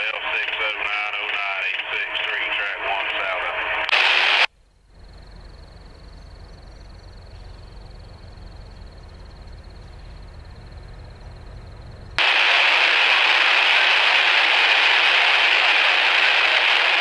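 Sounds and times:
diesel locomotive rumble: 0:05.0 - 0:13.2.

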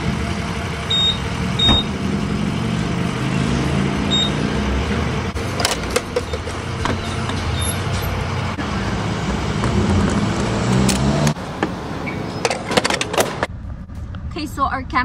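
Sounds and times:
keypad beeps: 0:04.1 - 0:04.4.

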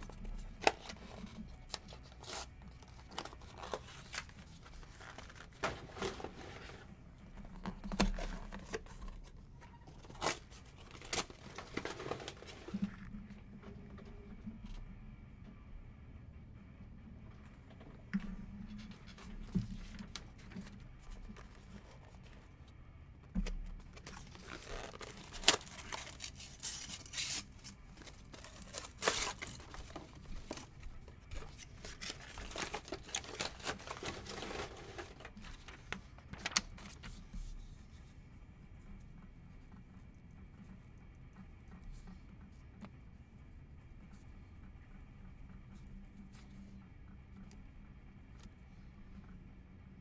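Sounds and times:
paper crinkling and tearing: 0:00.0 - 0:06.8, 0:23.9 - 0:37.4.

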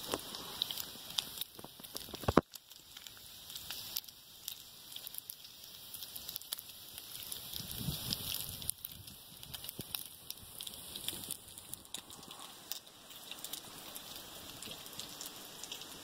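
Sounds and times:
fat spattering pops: 0:00.0 - 0:02.6
bacon sizzling in a pan: 0:00.0 - 0:16.0
fire crackling: 0:00.0 - 0:16.0.

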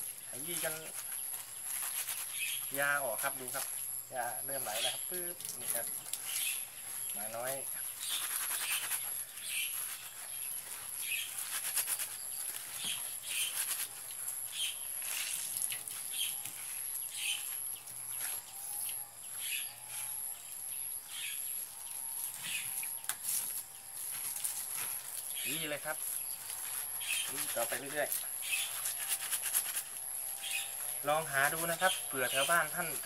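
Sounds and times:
wet leaves squishing in plastic bag: 0:00.2 - 0:03.8.

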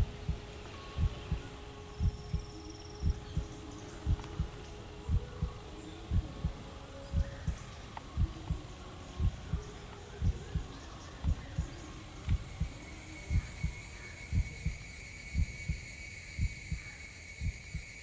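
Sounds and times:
heartbeat thumps: 0:00.0 - 0:14.8, 0:15.4 - 0:15.8, 0:16.4 - 0:17.9.

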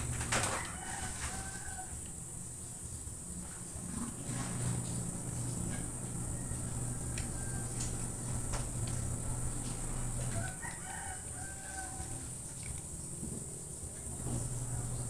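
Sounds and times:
rooster crowing: 0:00.0 - 0:02.4, 0:04.8 - 0:12.7, 0:14.1 - 0:15.0
steady low hum: 0:00.0 - 0:15.0.

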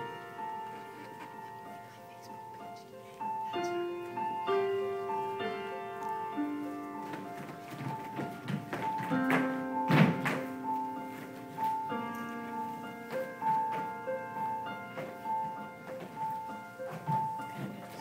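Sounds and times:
instrumental music with held notes: 0:00.0 - 0:18.0
dancers' feet thudding on floor: 0:05.4 - 0:18.0.

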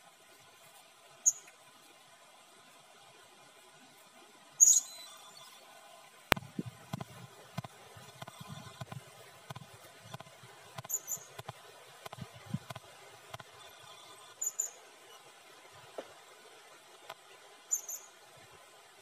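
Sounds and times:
parrot squeaky calls: 0:01.2 - 0:01.5, 0:04.6 - 0:05.5, 0:10.9 - 0:11.3, 0:14.4 - 0:14.8, 0:17.7 - 0:18.1.

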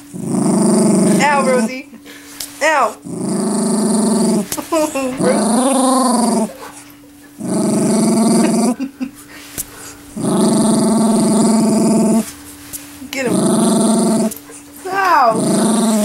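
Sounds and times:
small dog growling: 0:00.0 - 0:01.9, 0:02.8 - 0:09.0, 0:09.8 - 0:12.4, 0:13.1 - 0:16.0.

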